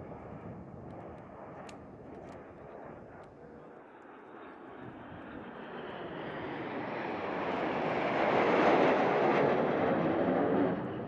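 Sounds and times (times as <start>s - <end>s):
jet aircraft flying past: 3.9s - 11.0s.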